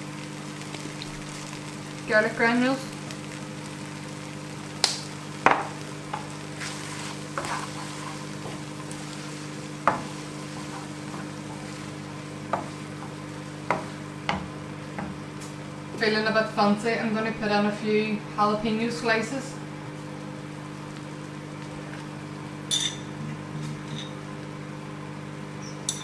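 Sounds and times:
vegetables sizzling in frying pan: 0.0s - 18.0s, 18.9s - 22.7s
steady low hum: 0.0s - 26.0s
wooden spatula knocking pan: 12.5s - 15.2s.

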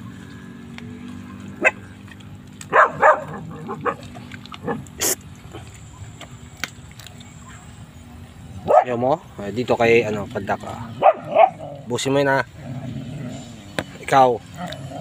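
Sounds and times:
steady low hum: 0.0s - 15.0s
dog barking: 1.6s - 1.9s, 2.7s - 4.8s, 8.6s - 9.0s, 11.0s - 11.6s.

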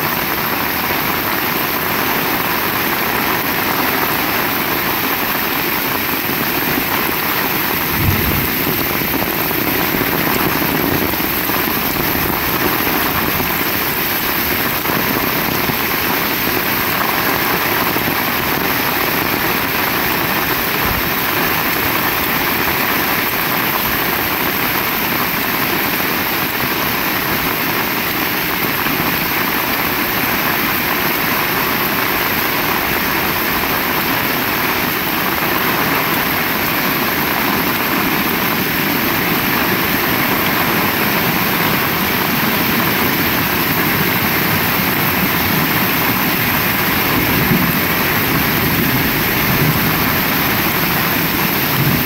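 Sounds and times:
heavy rain falling: 0.0s - 52.0s
low thump: 7.8s - 9.3s.

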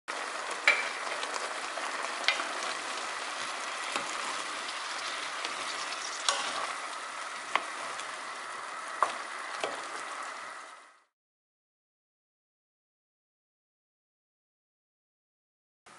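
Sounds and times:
glaze bubbling and sizzling: 0.1s - 11.1s.

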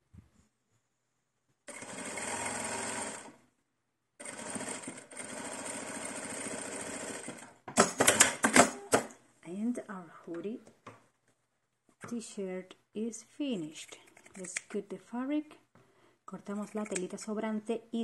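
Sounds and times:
electric sewing machine stitching: 1.7s - 3.4s, 4.2s - 8.8s
sharp clicks: 14.1s - 14.8s, 16.6s - 17.2s.

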